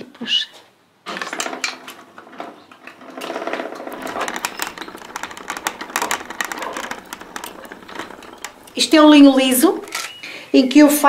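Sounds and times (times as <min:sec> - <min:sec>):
wooden winder rattling whir: 0:03.0 - 0:10.1.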